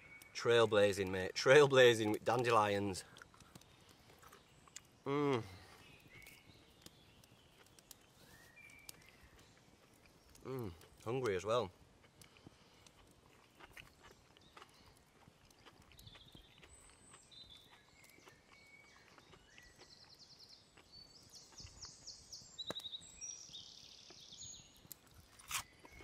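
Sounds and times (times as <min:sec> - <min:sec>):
birdsong: 0:00.0 - 0:26.0.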